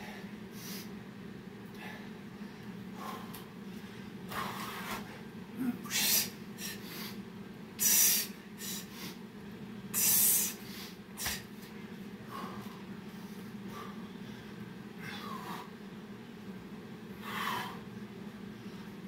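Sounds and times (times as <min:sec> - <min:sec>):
low steady hum: 0:00.0 - 0:19.0
man huffing breaths: 0:01.7 - 0:07.2, 0:12.2 - 0:15.8.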